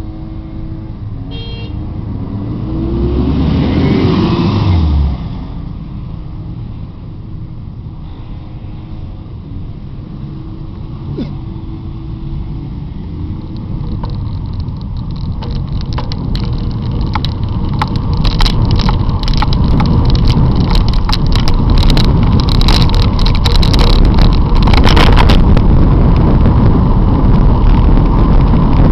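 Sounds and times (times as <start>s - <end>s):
bicycle road rumble: 0.0s - 28.9s
wind buffeting microphone: 9.2s - 28.9s
rattle of sharp clicks: 13.5s - 25.4s.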